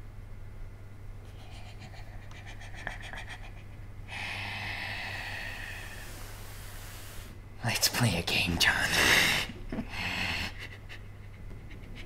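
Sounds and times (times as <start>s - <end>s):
faint low hum: 0.0s - 12.0s
long hissing breath: 4.1s - 7.4s, 8.9s - 10.5s.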